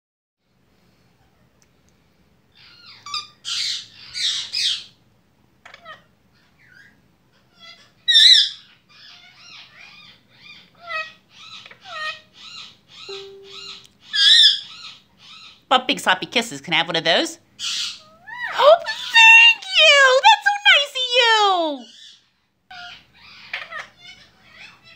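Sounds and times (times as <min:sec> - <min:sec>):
short repeated bird notes: 0:13.1 - 0:13.9
parakeet calling: 0:17.6 - 0:18.2.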